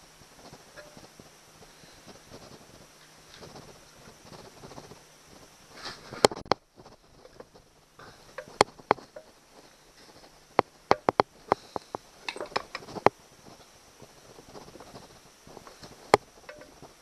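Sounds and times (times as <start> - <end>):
metal castings knocking together: 12.2 - 12.9.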